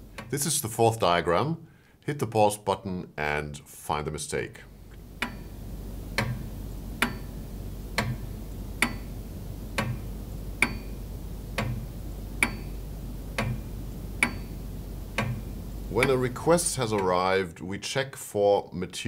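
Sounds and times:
clock ticking: 0.0 - 0.4, 5.2 - 9.1, 9.7 - 17.2.

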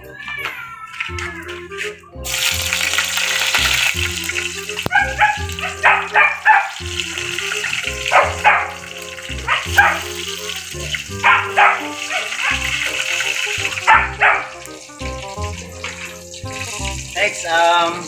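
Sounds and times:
background music with bass line: 1.1 - 18.0
garlic sizzling in hot oil: 2.2 - 18.0
sharp bark-like cries: 4.9 - 14.8.

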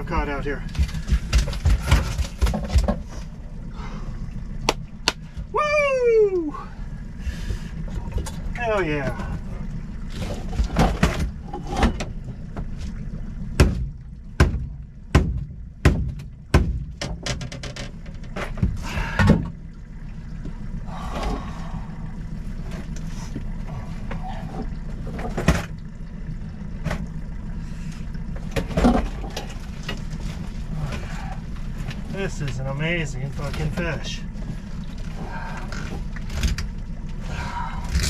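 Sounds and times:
steady low hum: 0.0 - 38.0
knocks and thumps on boat floor: 0.6 - 3.3, 10.2 - 13.0, 13.6 - 19.6.

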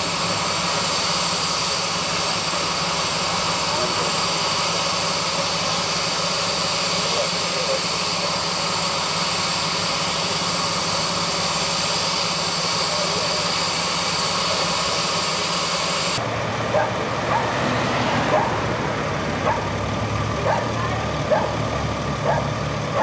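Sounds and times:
gas hissing from pipe: 0.0 - 16.2.

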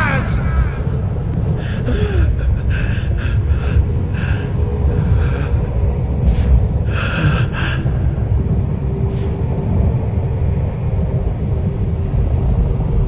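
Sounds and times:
man gasping and panting: 0.0 - 5.8, 6.9 - 8.2
steady low rumble: 0.0 - 13.0.

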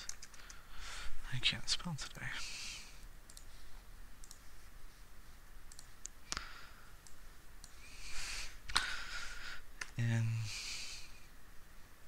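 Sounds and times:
computer mouse clicking: 0.0 - 0.6, 3.3 - 3.5, 4.2 - 4.5, 5.7 - 7.8
soft breathy hiss: 0.3 - 12.0.

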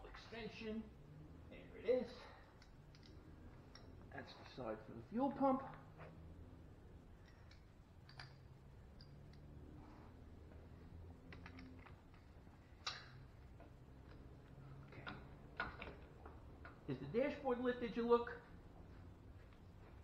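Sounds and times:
faint low hum: 0.0 - 20.0
metal tools clicking: 2.2 - 4.0, 7.2 - 9.5, 11.2 - 16.9.

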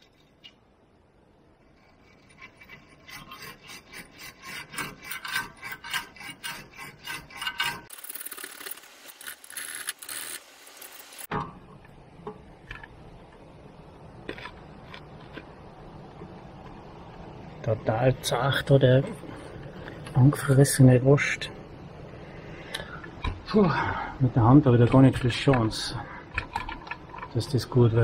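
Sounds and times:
wire brush scrubbing steel: 1.6 - 11.3.

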